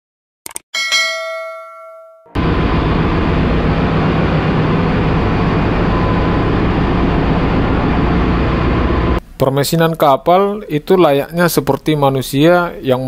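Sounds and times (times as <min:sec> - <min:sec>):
ship engine room machinery hum: 0:02.4 - 0:09.3.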